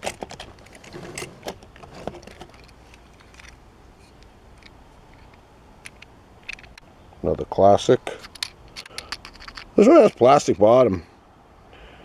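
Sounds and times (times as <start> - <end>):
toy cars clicking in plastic case: 8.2 - 10.3.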